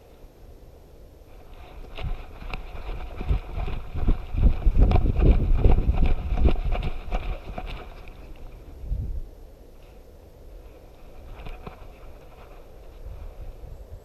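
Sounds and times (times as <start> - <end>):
wind buffeting microphone: 1.3 - 9.4, 10.5 - 14.0
thuds and knocks of dog running: 1.7 - 8.4.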